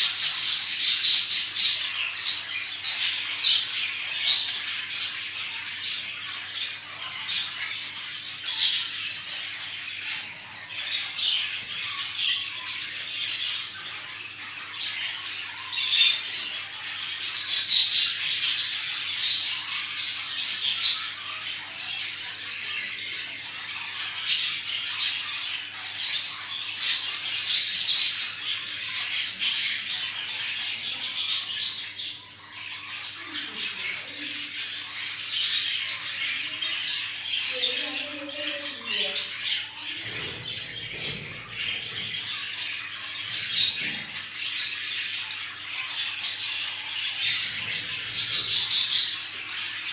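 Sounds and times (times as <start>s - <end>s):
budgerigars chattering and squawking: 0.0s - 49.9s.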